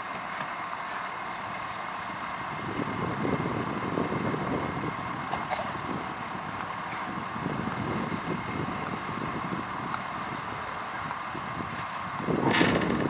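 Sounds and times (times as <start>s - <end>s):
vehicles idling: 0.0s - 13.0s
low rumbling: 1.4s - 13.0s.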